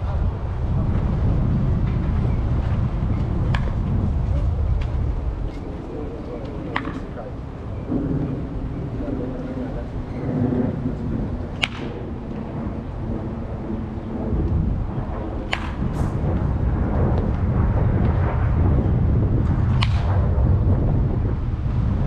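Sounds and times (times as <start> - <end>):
wind rumble on microphone: 0.0 - 22.0
baseball bat cracks: 6.7 - 7.1, 11.5 - 12.4, 15.4 - 16.1, 19.7 - 20.2.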